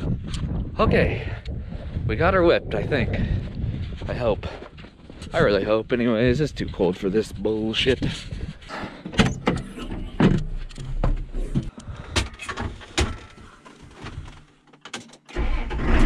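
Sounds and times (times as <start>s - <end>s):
clicks knocks and thuds: 8.8s - 15.3s.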